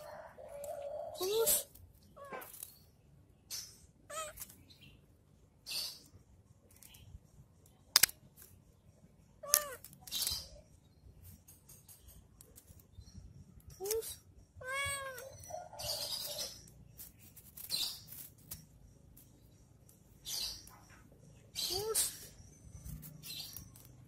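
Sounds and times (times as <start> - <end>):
cats crying: 4.1 - 4.6, 14.6 - 15.9.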